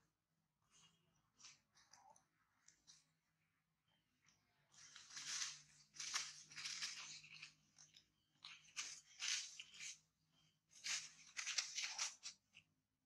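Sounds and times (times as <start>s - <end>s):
dry leaves crunching underfoot: 4.8s - 7.4s.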